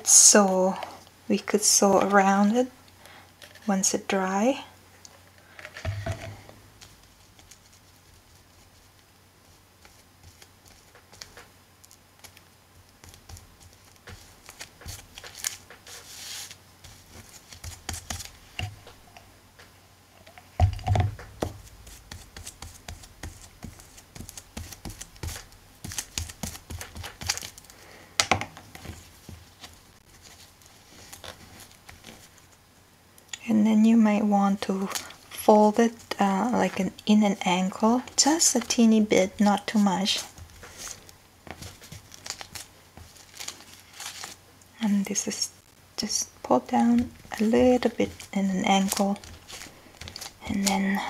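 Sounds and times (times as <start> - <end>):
paper and cloth rustling: 5.4 - 12.4, 13.0 - 19.0, 28.7 - 32.6, 37.9 - 44.4, 46.6 - 51.0.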